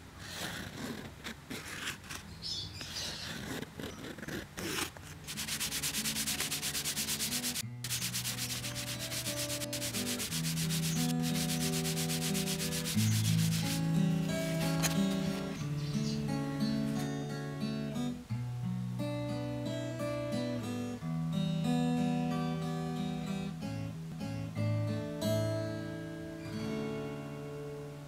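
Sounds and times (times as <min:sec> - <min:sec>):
cloth rubbing leather: 0:00.2 - 0:15.6
acoustic guitar music: 0:05.2 - 0:28.0.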